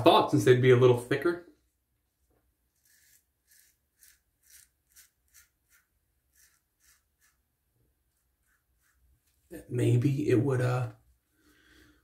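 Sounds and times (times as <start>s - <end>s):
razor scraping stubble: 2.6s - 9.6s.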